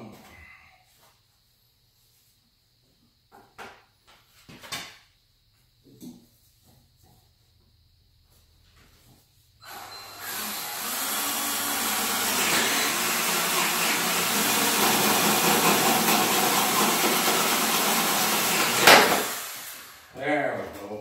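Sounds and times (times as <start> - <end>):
power drill boring: 9.6 - 20.1.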